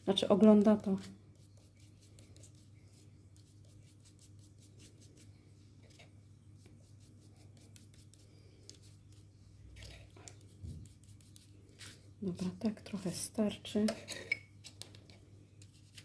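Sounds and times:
low steady hum: 0.0s - 16.0s
dabbing ink onto paper: 6.6s - 11.9s.

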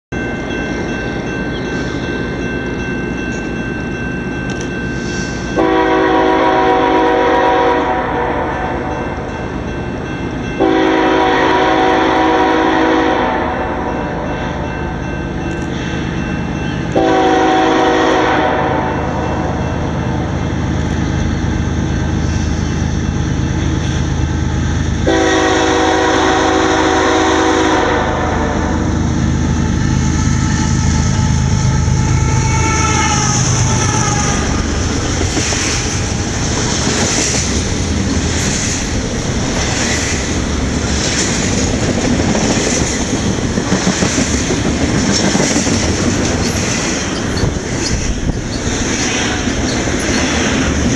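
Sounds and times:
diesel locomotive rumble: 0.1s - 50.9s
locomotive air horn blast: 5.6s - 8.9s, 10.6s - 14.3s, 16.9s - 19.6s, 25.0s - 34.9s.

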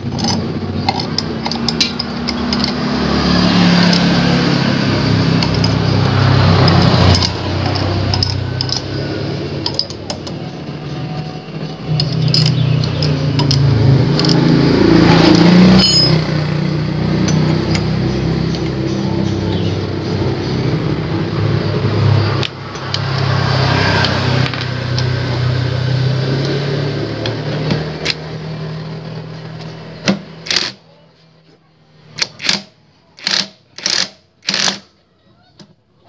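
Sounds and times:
engine-like hum: 0.0s - 36.0s
metallic clinks of bolts: 9.6s - 10.6s, 11.8s - 14.5s, 15.2s - 16.5s.

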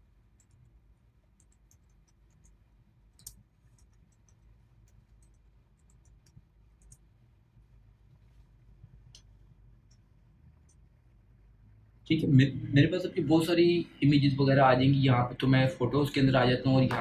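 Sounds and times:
computer keyboard typing: 0.3s - 7.1s.

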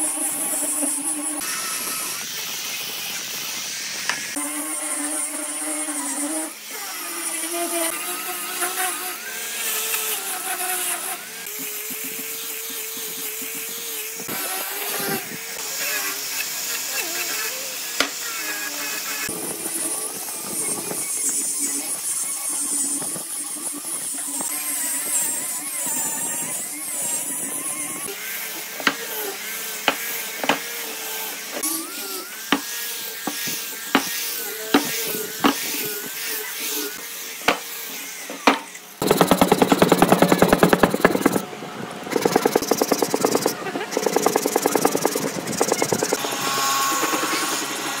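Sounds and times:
angle grinder sanding wood: 0.0s - 48.0s
disc ticking on block edges: 39.0s - 41.4s, 42.1s - 46.2s
scratchy rubbing on wood: 39.0s - 41.4s, 42.1s - 47.9s.

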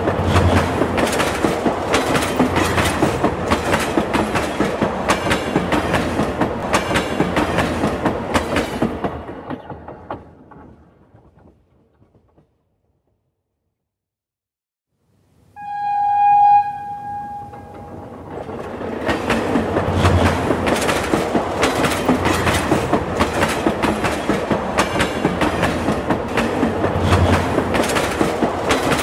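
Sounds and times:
train wheels clattering over rails: 0.0s - 12.7s, 17.8s - 29.0s
train horn: 15.6s - 18.1s.

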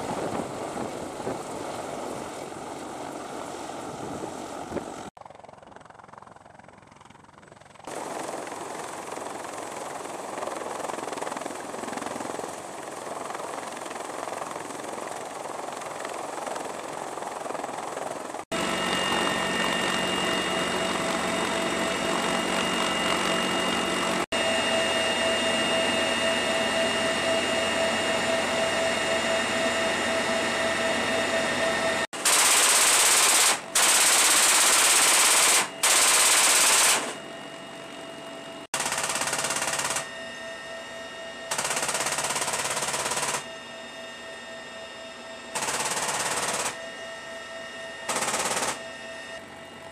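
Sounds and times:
helicopter cabin whine: 0.0s - 49.9s
helicopter rotor and engine: 0.0s - 49.9s
machine gun firing bursts: 32.2s - 37.2s, 38.8s - 40.1s, 41.5s - 43.4s, 45.6s - 46.8s, 48.1s - 48.8s.

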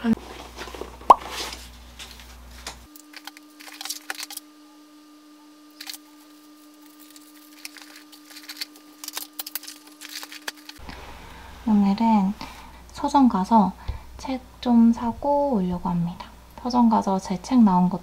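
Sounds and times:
faint steady hum: 0.0s - 18.0s
items clicking and rustling: 6.8s - 10.8s.

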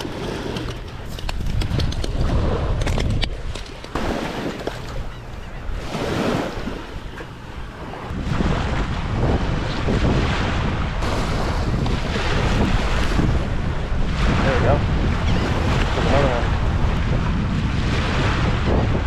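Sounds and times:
wind on microphone: 0.0s - 19.0s
small waves washing on sand: 5.8s - 19.0s.

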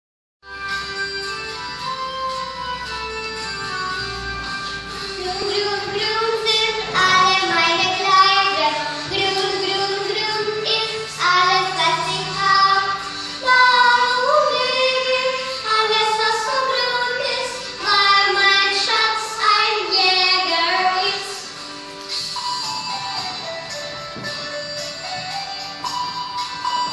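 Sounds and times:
girls singing together: 5.1s - 21.4s.

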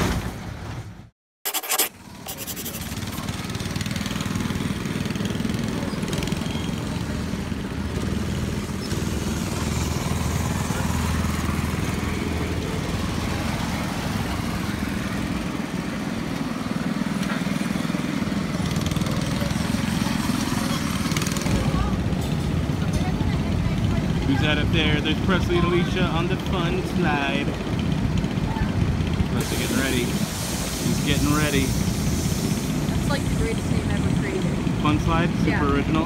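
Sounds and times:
go-kart engines droning: 2.8s - 29.4s.

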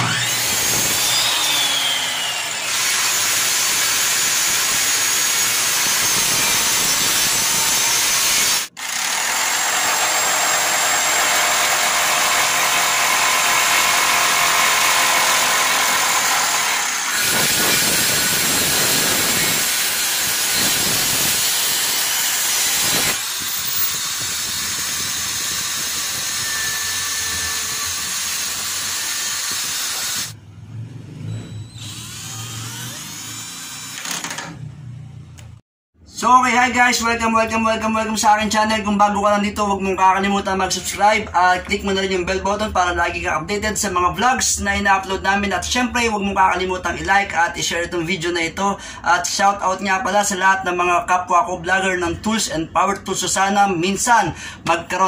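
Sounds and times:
electric drill boring wood: 0.0s - 30.4s, 31.7s - 34.6s
electric jigsaw cutting wood: 0.0s - 30.4s, 31.8s - 34.6s
miter saw cutting board: 0.0s - 30.4s, 31.7s - 34.6s.

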